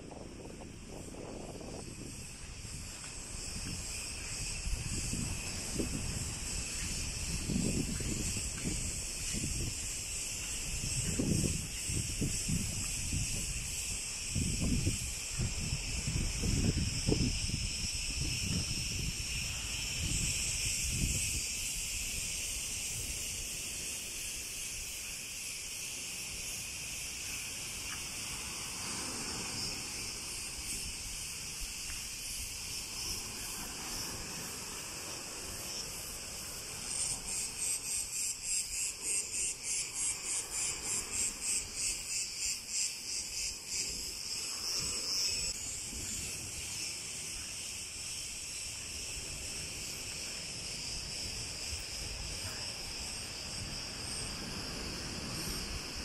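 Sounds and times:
cicadas singing: 0.0 - 56.0.

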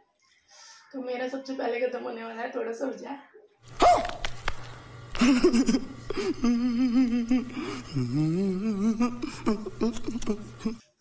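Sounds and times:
wavering whimpering voice: 6.1 - 10.9.

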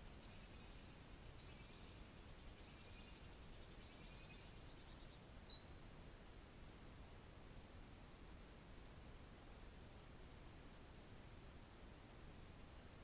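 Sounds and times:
thin high steady tone: 0.0 - 5.9
faint forest ambience: 0.0 - 13.0.

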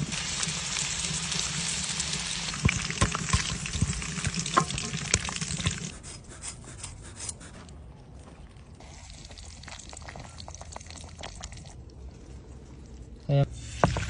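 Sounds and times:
potatoes sizzling in hot oil: 0.0 - 5.8.

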